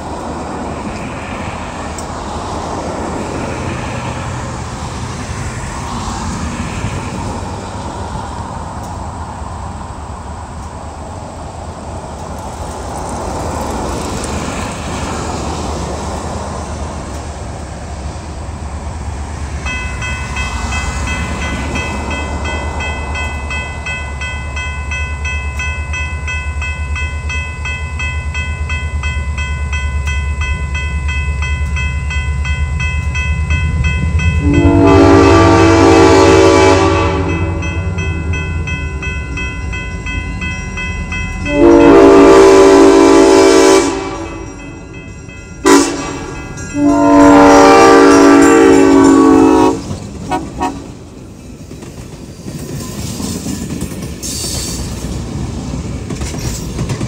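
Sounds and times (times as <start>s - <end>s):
low steady train rumble: 0.0s - 57.0s
train air horn blasts: 34.4s - 38.0s, 41.4s - 44.6s, 45.6s - 50.9s.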